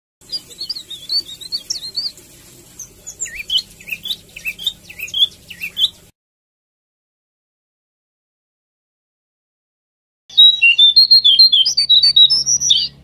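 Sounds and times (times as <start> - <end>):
bird twittering and whistling: 0.2 - 6.1, 10.3 - 13.0.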